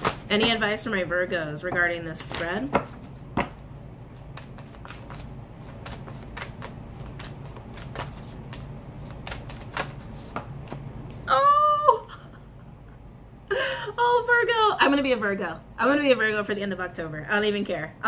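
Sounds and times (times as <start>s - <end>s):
cards being shuffled: 0.0s - 0.8s, 1.8s - 11.2s.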